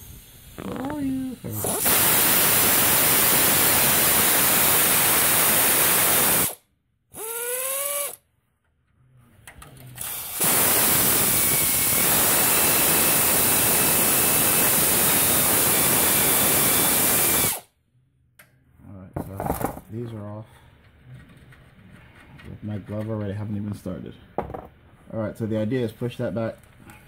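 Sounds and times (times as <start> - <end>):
pneumatic air ratchet hissing: 1.6 - 6.6, 10.0 - 17.7.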